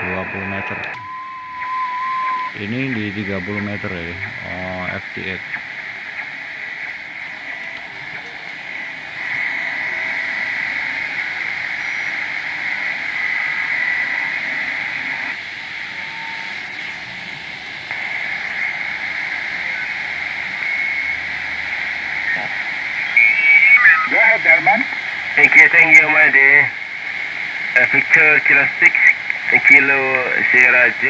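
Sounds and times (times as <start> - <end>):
radio band hiss: 0.0 - 1.0, 1.6 - 31.0
faint radio tones: 0.0 - 31.0.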